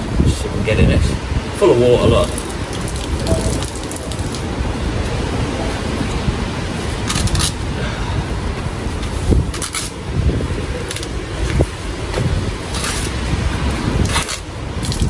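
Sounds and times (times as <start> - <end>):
steady rushing noise: 0.0 - 15.0
crackling rustles: 2.2 - 4.6, 14.0 - 15.0.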